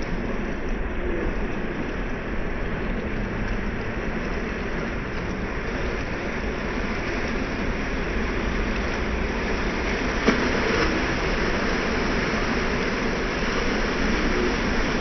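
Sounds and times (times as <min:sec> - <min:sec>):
ocean waves breaking on rocks: 0:06.5 - 0:15.0.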